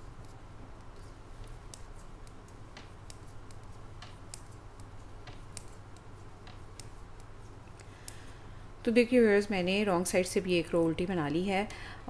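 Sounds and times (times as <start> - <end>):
knitting needles clicking: 0.2 - 8.3.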